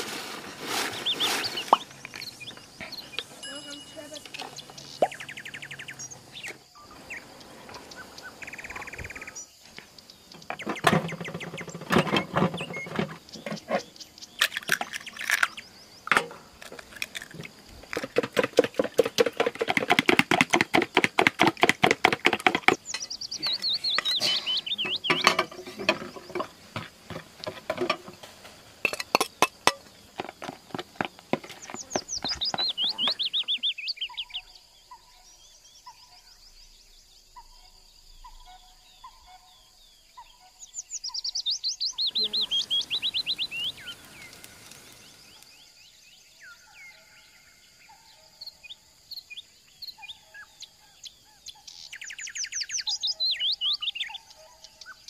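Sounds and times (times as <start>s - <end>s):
birds chirping: 0.3s - 55.0s
utensil clinking and scraping bowl: 21.6s - 33.0s.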